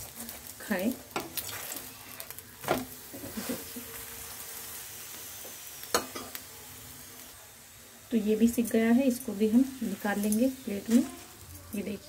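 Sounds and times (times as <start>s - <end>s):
flatbread sizzling in oil: 0.0s - 12.0s.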